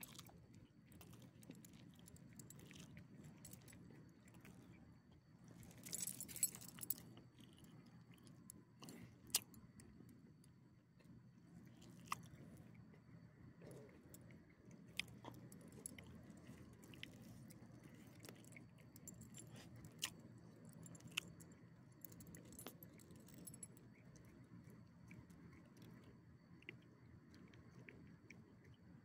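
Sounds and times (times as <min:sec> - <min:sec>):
collar tags jingling: 0:05.6 - 0:07.0.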